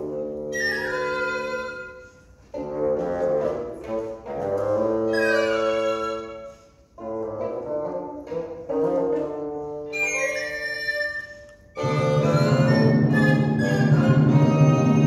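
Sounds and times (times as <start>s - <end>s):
chamber music: 0.0s - 15.0s.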